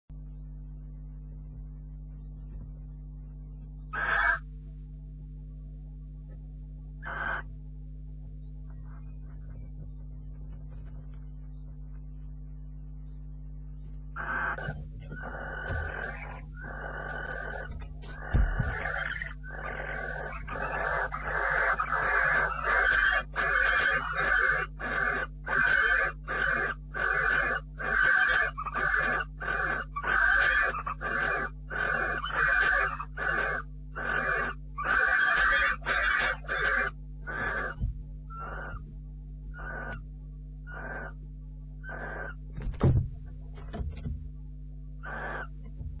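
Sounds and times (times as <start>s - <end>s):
barn owls hissing calls: 4.0s - 4.4s, 7.0s - 7.5s, 14.2s - 38.8s, 39.6s - 40.0s, 40.7s - 41.2s, 41.8s - 42.4s, 45.0s - 45.6s.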